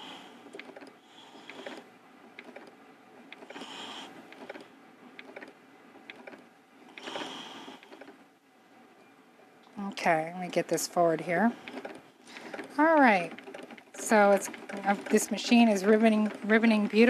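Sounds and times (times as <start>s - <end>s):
microtome mechanical clicks: 0.5s - 8.2s.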